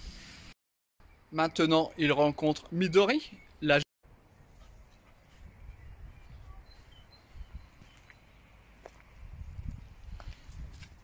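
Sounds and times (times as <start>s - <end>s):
footsteps on grass: 6.7s - 11.0s.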